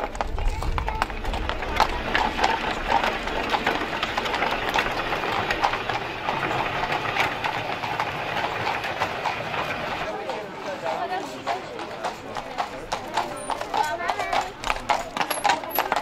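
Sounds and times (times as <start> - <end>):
carriage wheels rattling: 0.0 - 10.1, 12.6 - 16.0
hooves clopping: 0.0 - 16.0.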